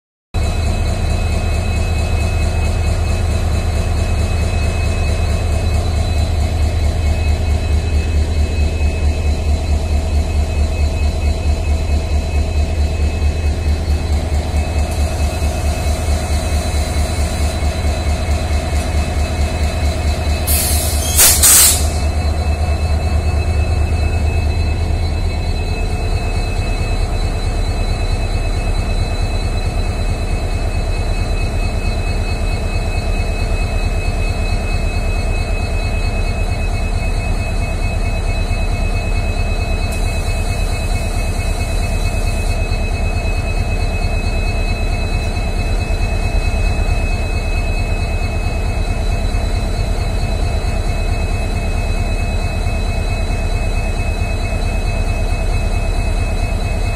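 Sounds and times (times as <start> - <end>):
diesel locomotive engine idling: 0.4 - 56.9
loud hiss: 20.5 - 22.0.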